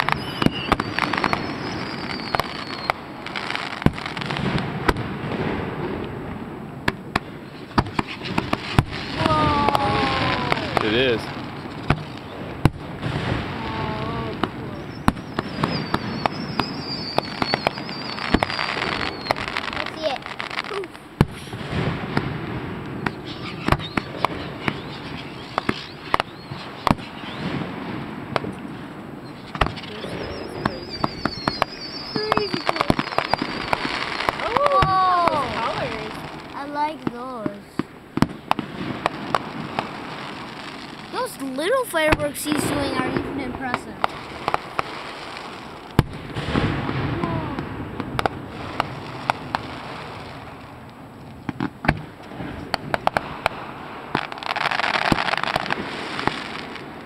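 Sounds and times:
falling high whistle: 0.0 - 3.0, 14.8 - 19.5, 30.1 - 35.4
firework bangs: 0.0 - 57.0.

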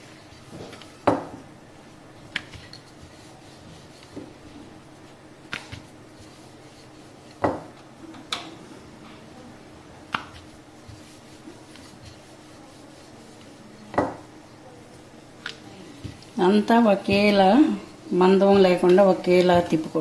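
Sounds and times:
rolling pin knocking on board: 1.1 - 1.4, 7.4 - 7.7, 13.9 - 14.2.

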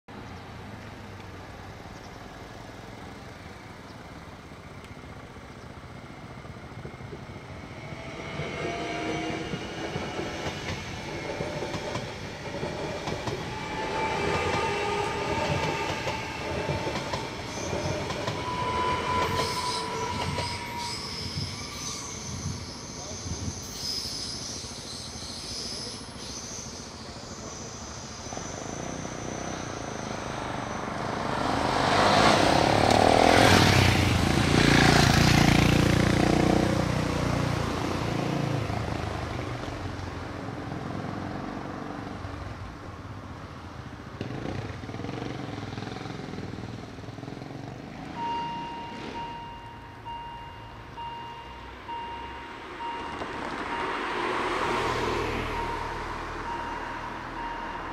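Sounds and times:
repeating electronic beep: 17.4 - 30.6, 48.2 - 57.9.

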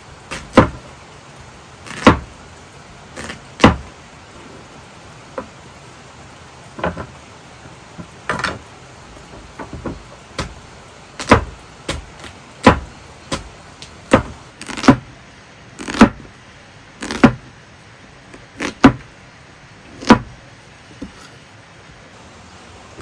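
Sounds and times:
knife chopping on wooden board: 0.3 - 0.8, 1.9 - 2.2, 3.2 - 3.9, 11.2 - 13.5, 14.1 - 15.0, 15.8 - 16.2, 17.0 - 17.4, 18.6 - 19.1, 20.0 - 20.3.

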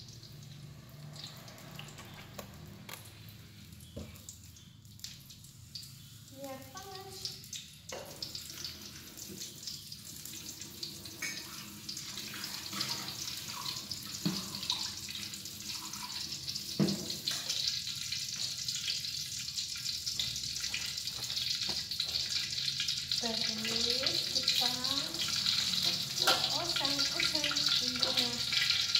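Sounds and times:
tap water running into sink: 6.4 - 19.5, 20.1 - 28.9.

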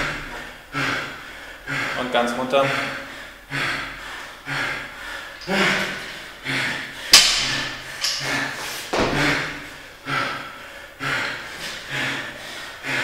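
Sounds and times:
man breathing hard: 0.0 - 13.0
barbell thump on floor: 8.9 - 9.2.

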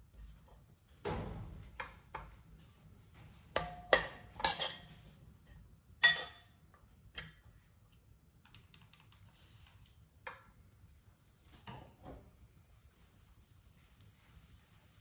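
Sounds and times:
metal ladle scraping a pot: 4.3 - 6.6.

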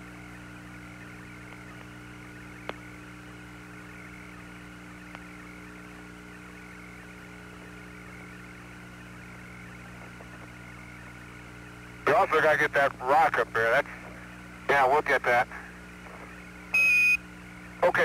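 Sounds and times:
radio hiss and hum: 0.0 - 18.0
sharp radio clicks: 1.4 - 2.0, 2.6 - 2.8.

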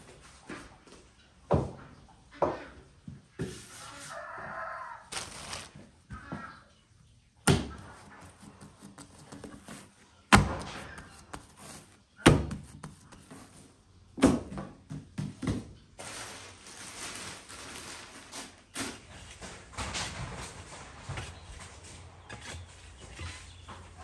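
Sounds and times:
plastic sheet rustling: 5.1 - 6.0, 16.0 - 21.8.

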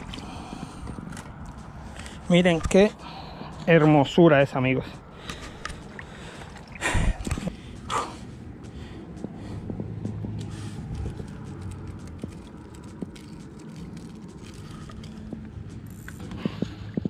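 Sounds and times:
low rumble: 4.8 - 17.0
small clicks and scrapes: 10.4 - 16.4.

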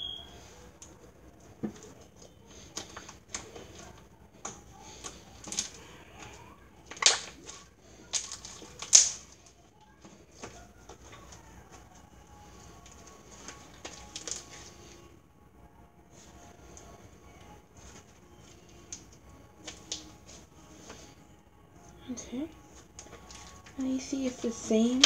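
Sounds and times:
slime squishing and popping: 6.8 - 9.4.

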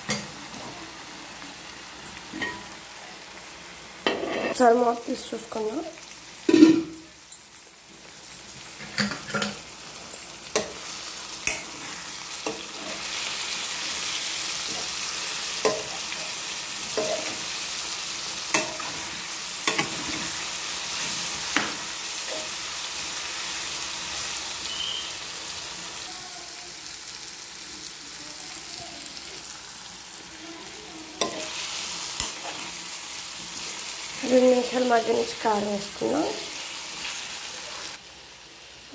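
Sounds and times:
food sizzling in oil: 0.0 - 38.9
steel spoon scraping pan: 4.0 - 4.6, 15.6 - 17.5, 31.2 - 32.8.

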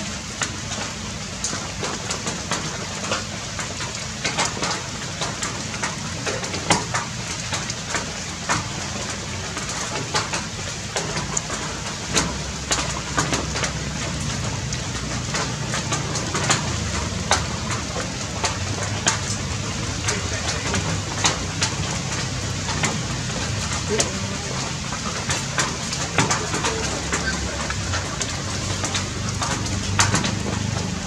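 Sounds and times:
rain falling steadily: 0.0 - 31.0.

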